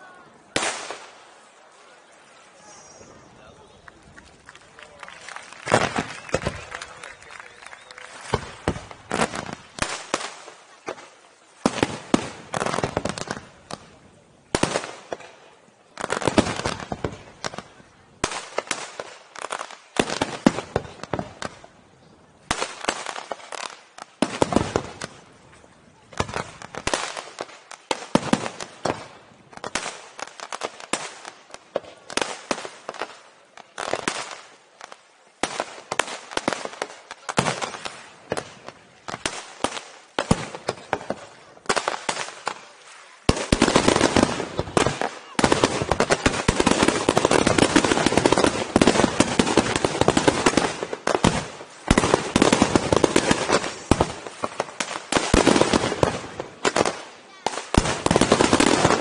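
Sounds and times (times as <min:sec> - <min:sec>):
firework crackling: 0:00.0 - 0:59.0.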